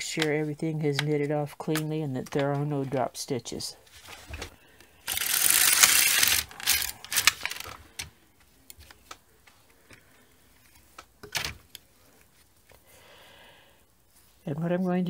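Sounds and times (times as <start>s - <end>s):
knitting machine carriage rattling: 5.1s - 7.8s.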